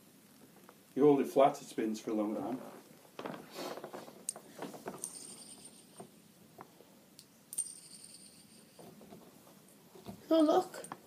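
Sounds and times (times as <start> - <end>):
faint high steady ring: 4.9 - 6.3, 7.5 - 9.0.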